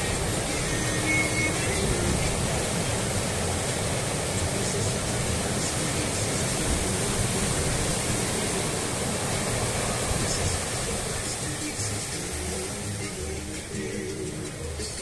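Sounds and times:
surf breaking on a beach: 0.0s - 15.0s
wind buffeting microphone: 0.0s - 15.0s.

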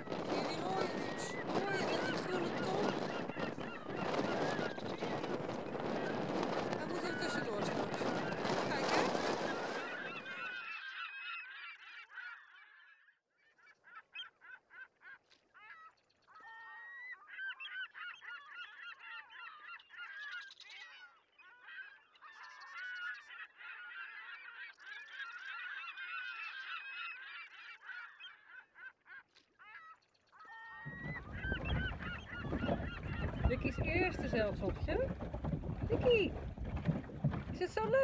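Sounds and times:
geese honking: 0.0s - 11.4s, 30.5s - 38.0s.

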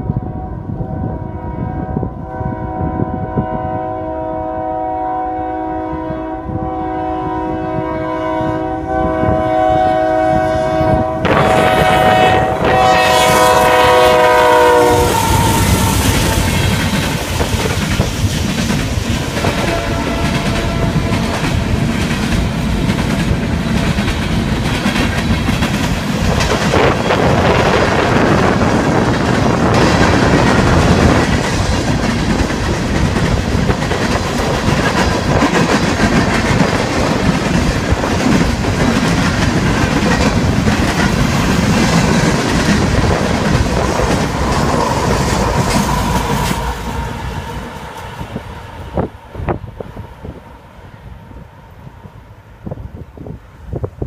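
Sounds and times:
freight train rolling past: 0.0s - 54.0s
wheels clacking over rail joints: 15.1s - 46.7s.

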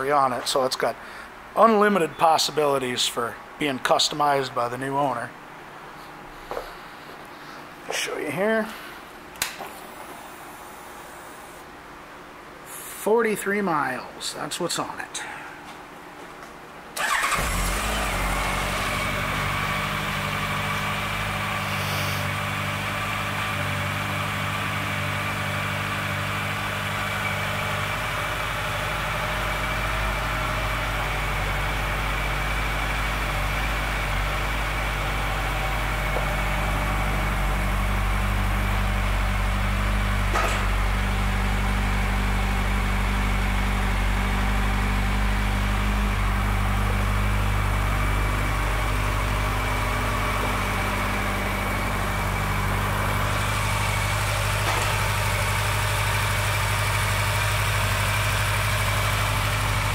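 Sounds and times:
motorcycle engine idling: 17.0s - 59.9s.

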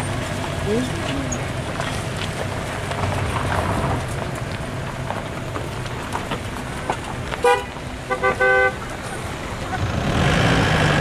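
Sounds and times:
traffic engines rumbling: 0.0s - 11.0s
vehicle horn beep: 7.4s - 8.9s.

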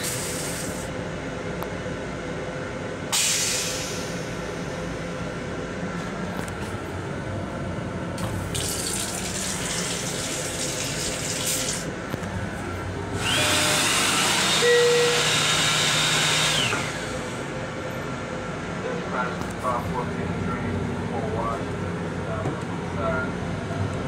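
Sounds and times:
low train hum: 0.0s - 15.4s, 16.6s - 24.0s
water running into sink: 8.5s - 11.9s.

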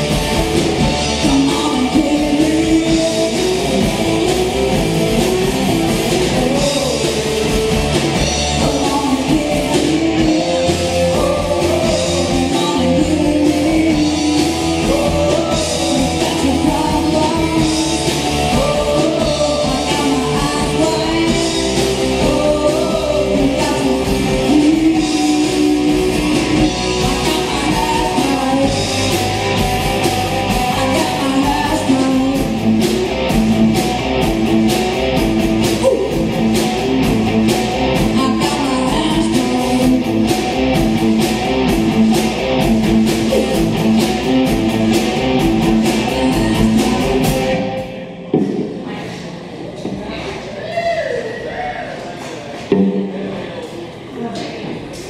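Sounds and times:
rock band playing live: 0.0s - 48.9s
person singing: 0.8s - 29.5s, 30.3s - 32.8s, 35.6s - 36.5s, 37.9s - 40.8s, 42.9s - 47.9s.

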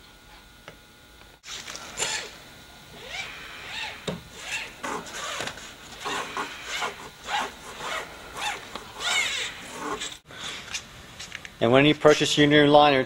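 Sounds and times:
steel liner scraping and rasping: 4.4s - 10.2s
squeaks: 6.0s - 10.2s.

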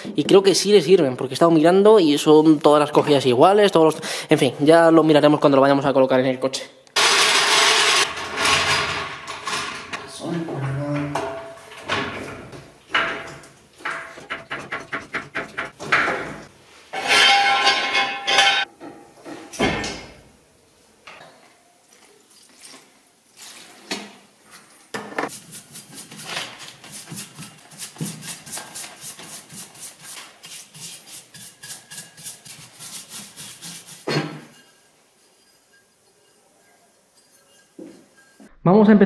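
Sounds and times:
tools and parts clattering: 7.0s - 20.0s.

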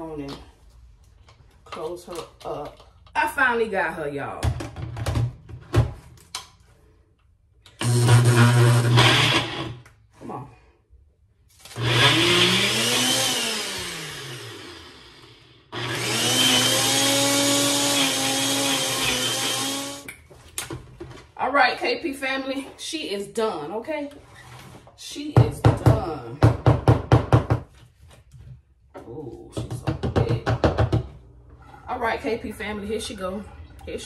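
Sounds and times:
blender running: 7.7s - 9.9s, 11.7s - 20.1s.

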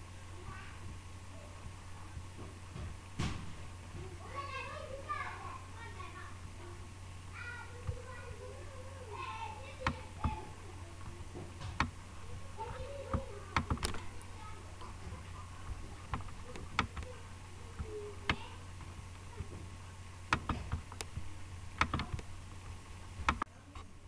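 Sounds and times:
steady low hum: 0.0s - 24.0s
computer mouse clicking: 9.8s - 10.4s, 11.7s - 12.0s, 12.7s - 14.1s, 15.7s - 17.1s, 20.3s - 22.3s, 23.2s - 23.5s.

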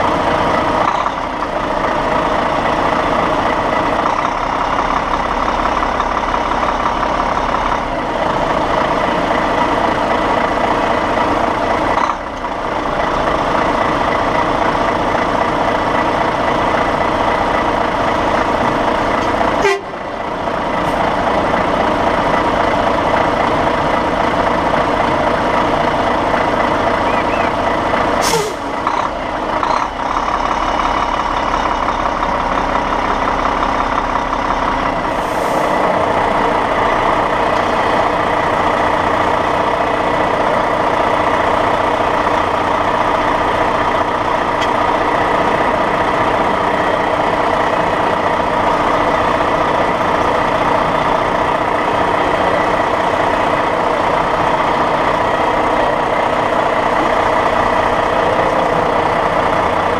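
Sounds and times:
diesel truck engine running: 0.0s - 59.9s
air brake hiss: 28.2s - 28.7s, 35.2s - 35.8s.

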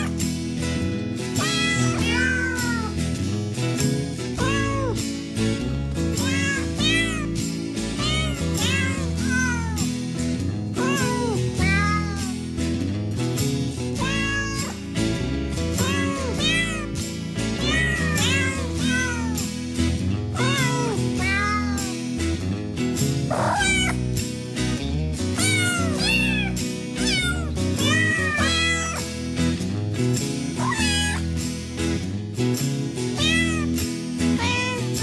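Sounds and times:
background music: 0.0s - 35.0s
kitten mewing: 8.0s - 9.8s, 10.8s - 12.2s, 23.3s - 24.0s, 30.6s - 31.2s.

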